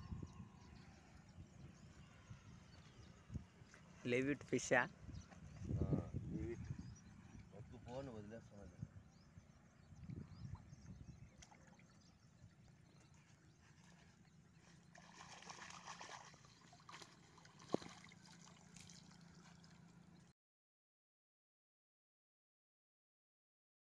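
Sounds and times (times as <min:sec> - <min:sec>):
water splashing and trickling: 0:10.0 - 0:20.3.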